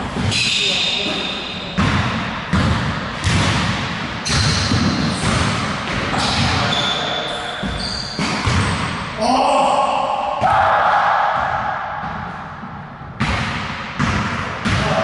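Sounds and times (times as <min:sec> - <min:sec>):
basketball bouncing on hardwood: 0:01.8 - 0:06.5, 0:07.6 - 0:08.8, 0:11.4 - 0:15.0.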